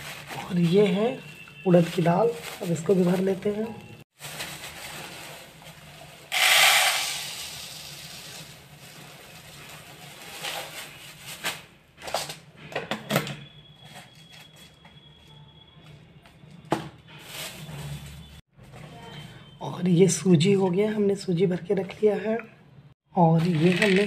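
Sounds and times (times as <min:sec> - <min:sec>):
lentils pouring into jar: 0:06.3 - 0:08.6, 0:23.4 - 0:24.0
plastic packet crinkling: 0:23.4 - 0:24.0.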